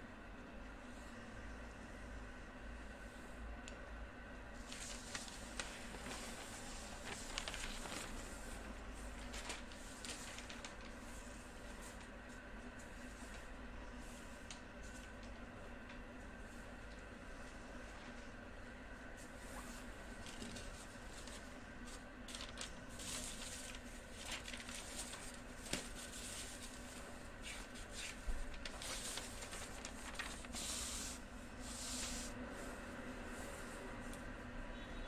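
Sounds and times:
paper rustling and sliding: 4.6s - 15.5s, 19.2s - 34.3s.

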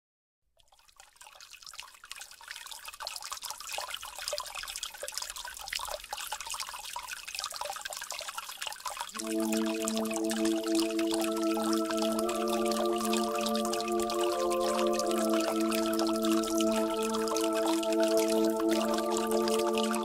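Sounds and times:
trickling water with drips: 0.5s - 20.0s
sustained musical chord: 9.2s - 20.0s.

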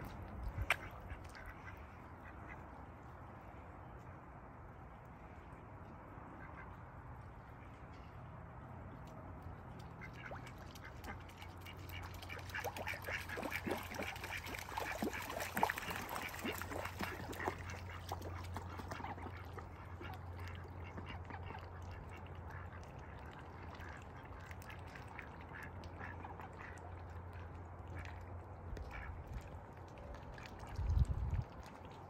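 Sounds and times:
ducks quacking: 10.0s - 23.0s.

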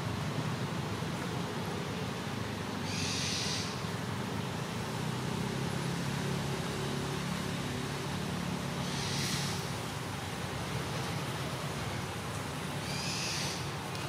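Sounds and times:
short high hiss: 8.8s - 9.8s.

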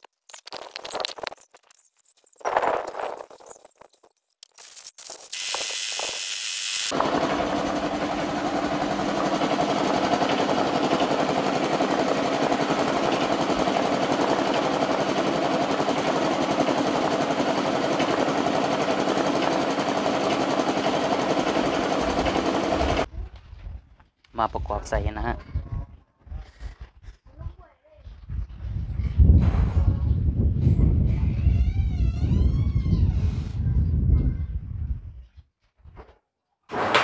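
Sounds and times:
compressed air blow gun blasting: 5.3s - 11.0s.

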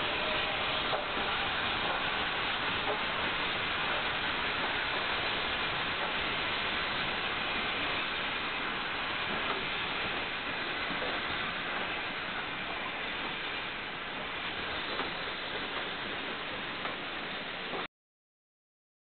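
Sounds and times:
steam hissing: 0.0s - 17.9s.

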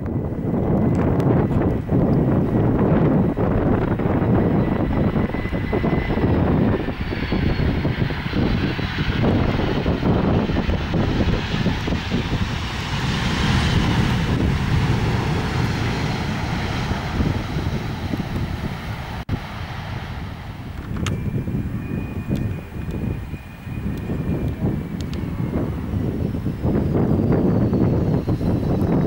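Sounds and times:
jet engines rumbling on landing: 0.0s - 29.0s
faint high whine: 19.8s - 29.0s.

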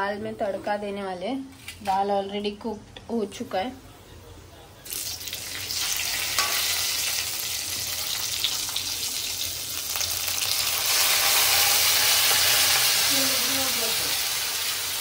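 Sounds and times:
garlic sizzling in hot oil: 4.8s - 15.0s.

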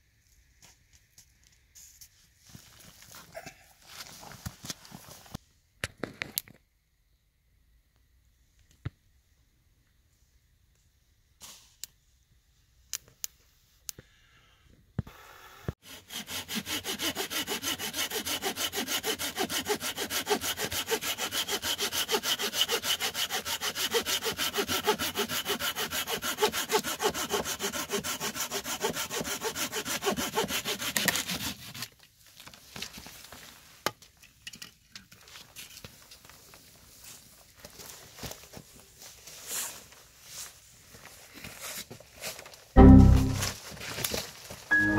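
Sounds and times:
hand saw cutting wood: 15.8s - 31.9s.

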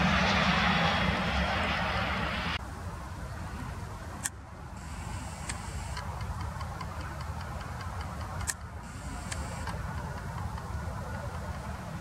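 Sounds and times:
low outdoor rumble: 0.0s - 12.0s
sharp clicks: 5.4s - 11.7s.

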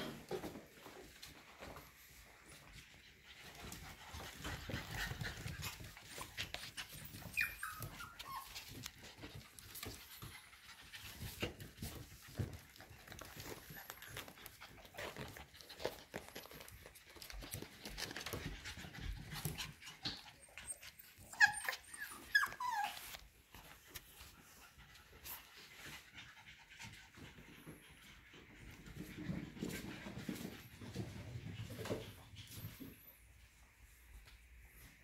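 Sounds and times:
puppies panting: 0.3s - 33.4s
puppy high-pitched squeals: 7.0s - 8.7s, 20.3s - 23.2s.

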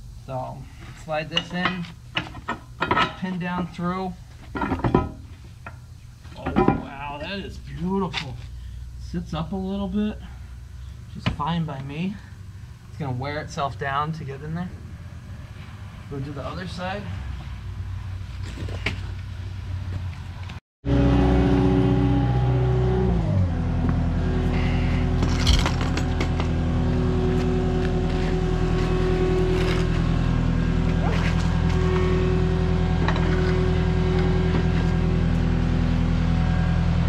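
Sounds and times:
skid steer engine running: 20.9s - 37.0s.

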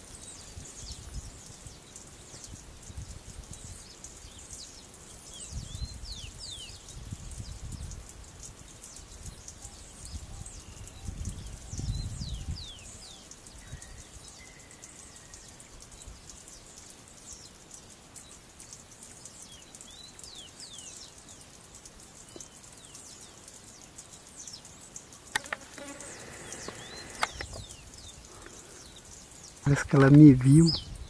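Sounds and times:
sharp clicks: 25.3s - 27.6s
high falling chirps: 25.4s - 31.0s.

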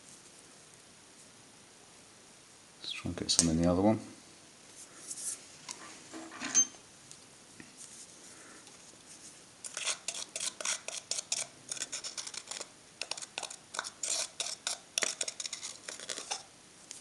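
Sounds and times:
metal blade scraping paste in cup: 9.6s - 16.5s.

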